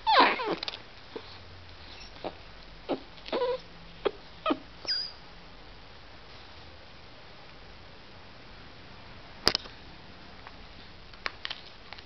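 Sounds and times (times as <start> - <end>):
dog whimpering and whining: 0.0 - 5.2.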